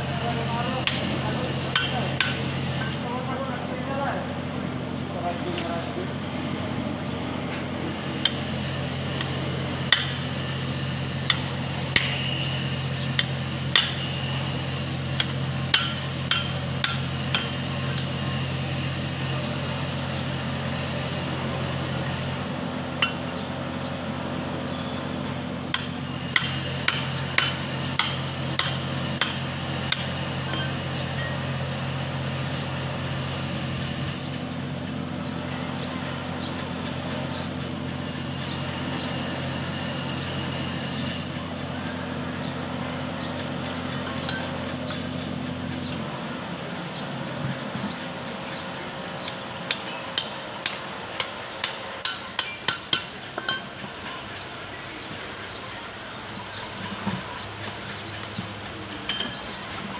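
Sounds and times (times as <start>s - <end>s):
steady low hum: 0.0s - 59.9s
metal parts clinking: 59.0s - 59.7s.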